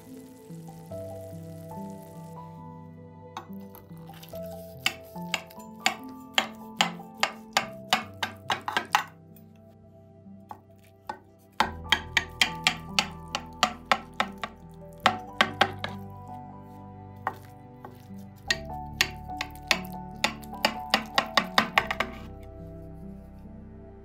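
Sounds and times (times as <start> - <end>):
soft background music: 0.0 - 24.0
knife tapping glass dish: 4.8 - 9.1, 18.5 - 22.3.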